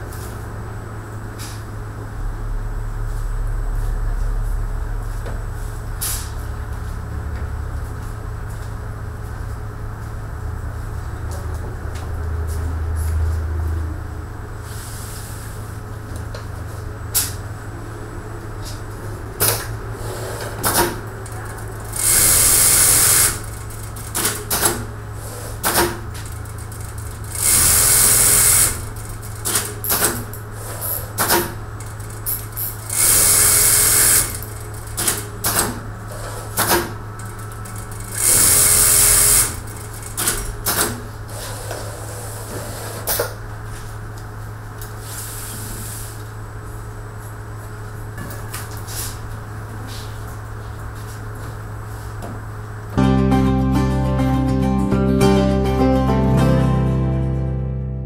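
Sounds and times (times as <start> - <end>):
pneumatic parts clicking: 19.4 - 21.1, 21.7 - 43.4
sewing machine hum: 19.8 - 43.0.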